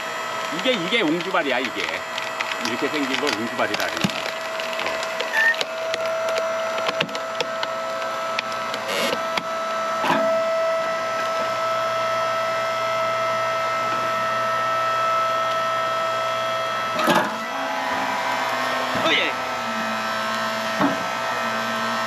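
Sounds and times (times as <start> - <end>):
hydraulic log splitter whining: 0.0 - 22.0
wood cracking and splintering: 0.5 - 9.4.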